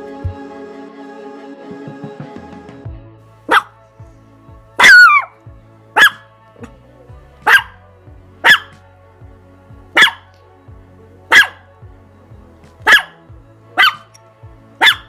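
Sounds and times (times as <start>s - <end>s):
small dog yapping: 3.5s - 3.7s, 4.8s - 5.3s, 6.0s - 6.2s, 7.5s - 7.8s, 8.4s - 8.7s, 10.0s - 10.3s, 11.3s - 11.6s, 12.8s - 13.1s, 13.8s - 14.1s.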